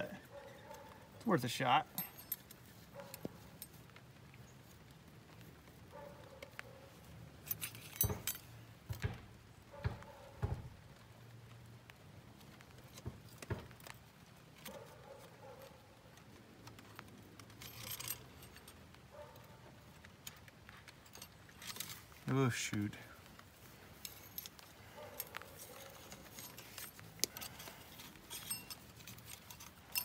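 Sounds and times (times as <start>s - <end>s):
metal jingly rattle: 0.0s - 3.8s, 7.4s - 8.6s, 17.4s - 19.5s, 20.8s - 22.2s, 23.6s - 30.0s
metal clinks and taps: 1.9s - 4.1s, 5.4s - 10.7s, 12.8s - 22.1s, 23.3s - 30.0s.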